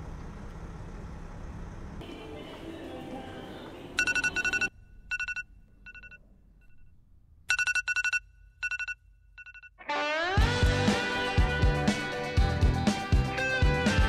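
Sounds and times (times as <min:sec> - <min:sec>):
smartphone alarm trilling: 0:04.0 - 0:06.9, 0:07.5 - 0:10.3.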